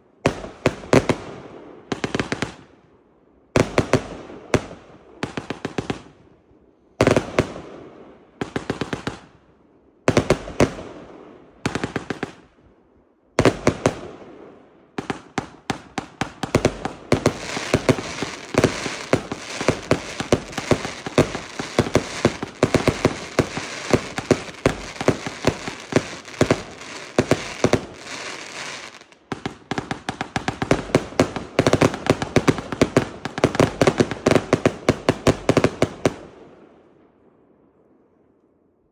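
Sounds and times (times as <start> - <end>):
firework cake firing rapid shots: 15.1 - 35.8.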